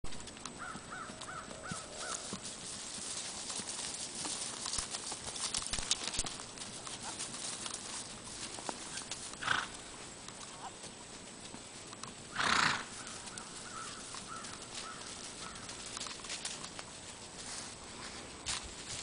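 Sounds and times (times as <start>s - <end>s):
horse hoofbeats on grass: 0.1s - 19.0s
bird calling: 0.6s - 2.5s, 12.3s - 16.0s.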